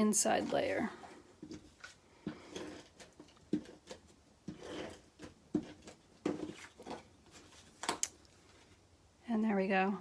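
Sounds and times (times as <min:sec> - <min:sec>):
paper rustling: 0:01.4 - 0:08.8.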